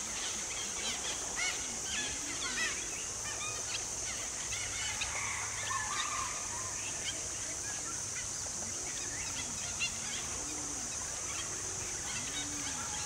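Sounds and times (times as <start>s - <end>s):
steady high hiss: 0.0s - 13.0s
pigeons chattering and whistling: 5.9s - 13.0s.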